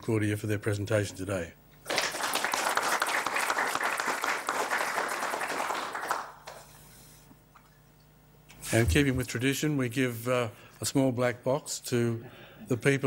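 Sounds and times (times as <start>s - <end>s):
audience applauding: 1.9s - 6.7s.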